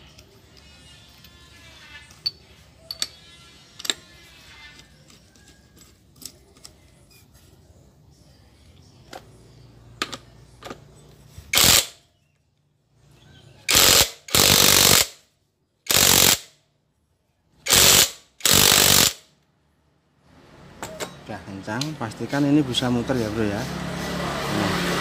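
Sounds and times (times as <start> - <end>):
impact wrench hammering: 13.7 - 15.2, 15.9 - 16.5, 17.7 - 19.2.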